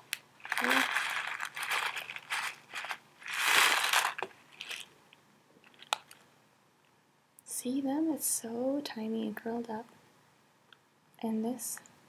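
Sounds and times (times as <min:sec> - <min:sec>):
foil pouch crinkling: 0:00.4 - 0:04.9, 0:05.6 - 0:06.2.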